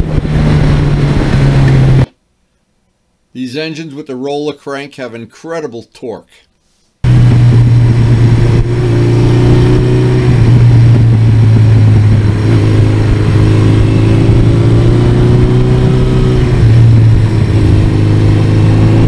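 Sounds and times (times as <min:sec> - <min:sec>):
motorcycle engine cruising: 0:00.0 - 0:02.1, 0:07.0 - 0:19.0.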